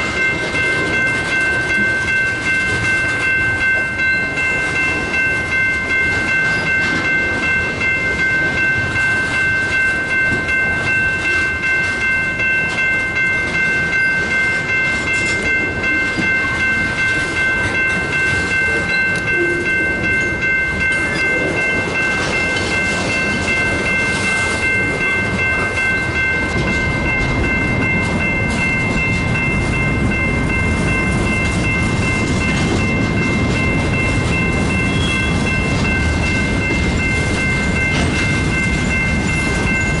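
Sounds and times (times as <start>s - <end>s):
deep train rumble: 0.0s - 40.0s
steady high-pitched tone: 0.0s - 40.0s
train wheels clicking over rail joints: 0.0s - 40.0s.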